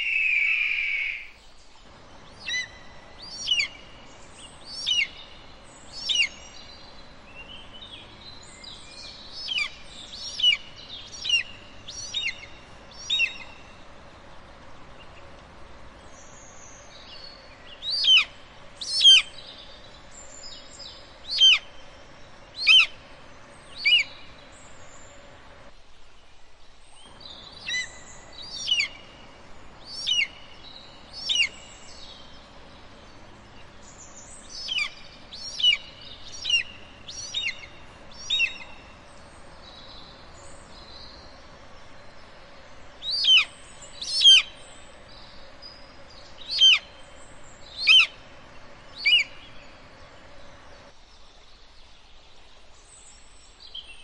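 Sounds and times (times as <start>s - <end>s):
eagle yelping calls: 0.0s - 1.3s, 43.1s - 43.5s, 46.5s - 46.9s, 47.8s - 48.2s.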